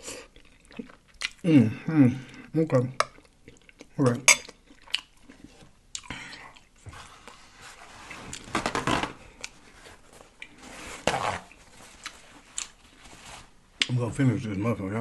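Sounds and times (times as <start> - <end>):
paper napkin rustling: 6.9 - 13.6.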